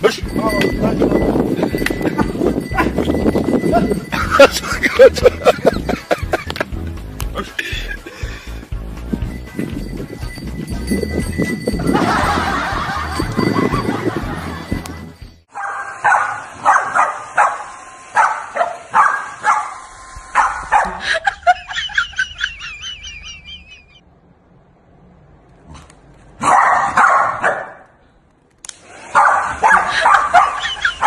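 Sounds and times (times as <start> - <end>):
dog barking: 15.5 - 17.6, 18.2 - 19.8, 20.4 - 21.0, 26.4 - 27.8, 29.1 - 30.8.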